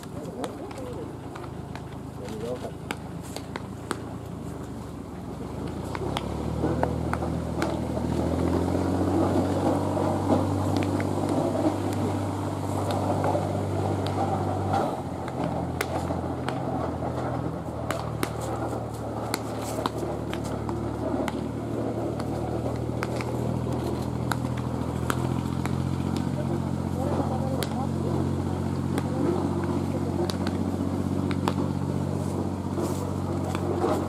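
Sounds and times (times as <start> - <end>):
baseballs smacking into gloves: 0.0 - 4.3, 5.6 - 8.3, 12.8 - 28.0, 28.6 - 32.0
crowd chatter: 0.0 - 7.0, 7.7 - 34.0
low engine hum: 0.0 - 34.0.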